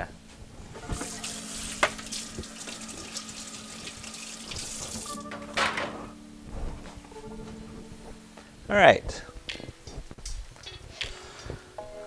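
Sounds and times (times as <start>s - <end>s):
tap running into sink: 0.9s - 5.1s.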